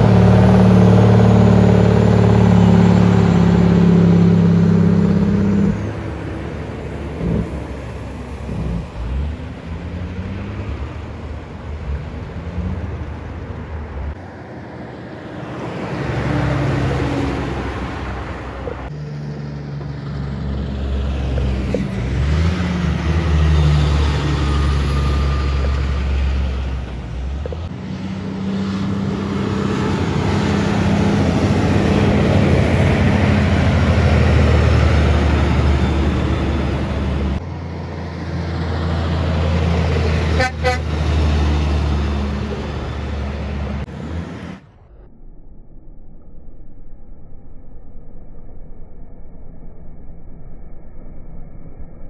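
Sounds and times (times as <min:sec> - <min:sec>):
diesel trucks driving past: 0:00.0 - 0:45.4
truck horn toot: 0:40.3 - 0:41.0.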